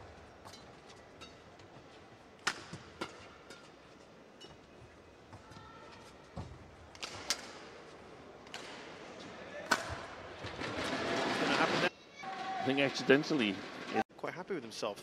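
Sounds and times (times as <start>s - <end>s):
rackets hitting shuttlecock: 2.4s - 4.7s, 7.0s - 7.8s, 8.5s - 9.0s, 9.6s - 10.6s.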